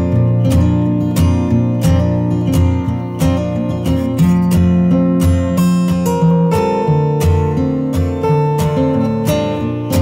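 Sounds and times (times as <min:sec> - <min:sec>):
acoustic guitar strumming: 0:00.0 - 0:10.0.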